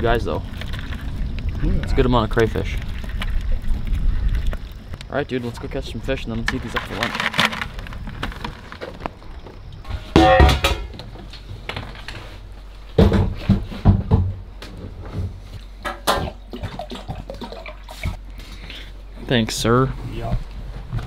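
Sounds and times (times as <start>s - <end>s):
pot knocks and clinks: 10.2s - 10.9s.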